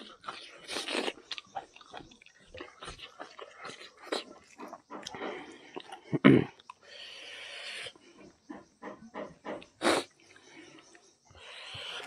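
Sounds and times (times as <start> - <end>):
man chewing and smacking: 0.0 - 7.0.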